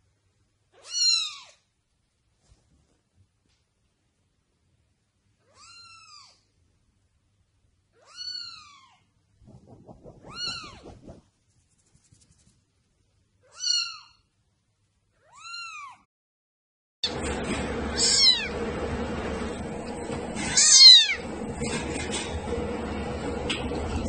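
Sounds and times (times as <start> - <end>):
low rustling: 9.4 - 12.6
kitten meowing: 13.5 - 14.2, 15.2 - 16.0.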